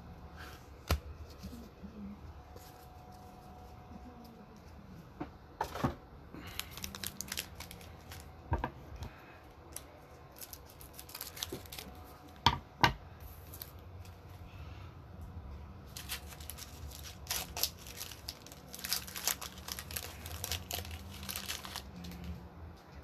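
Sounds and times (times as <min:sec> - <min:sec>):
wrappers crinkling and tearing: 0:06.4 - 0:08.4, 0:09.1 - 0:12.4, 0:13.2 - 0:14.2, 0:15.9 - 0:22.4.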